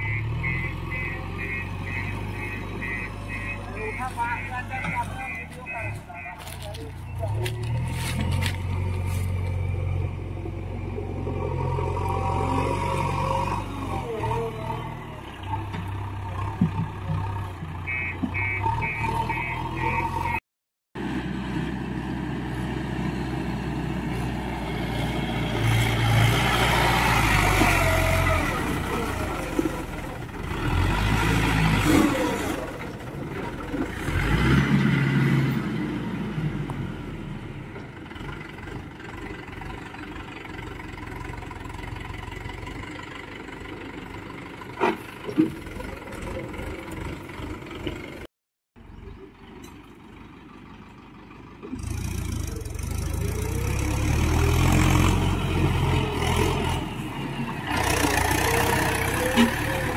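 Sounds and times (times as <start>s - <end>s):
diesel engines running: 0.0s - 20.4s, 21.0s - 59.9s
tractor engine revving: 0.0s - 20.4s, 21.0s - 48.3s, 49.9s - 59.9s
short high beeps: 17.9s - 20.4s.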